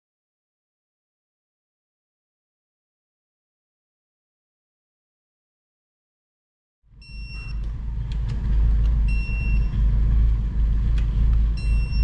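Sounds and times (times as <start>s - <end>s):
steady low rumble: 6.9s - 12.0s
torque wrench beeps: 7.0s - 7.6s, 9.1s - 9.8s, 11.6s - 12.0s.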